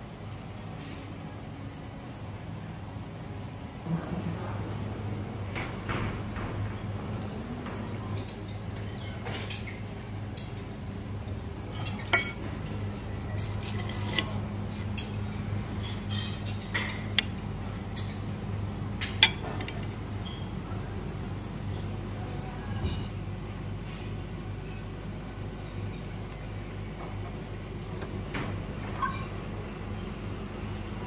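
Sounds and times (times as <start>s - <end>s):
steady low hum: 0.0s - 31.0s
cutlery clinking on plates: 11.7s - 14.4s.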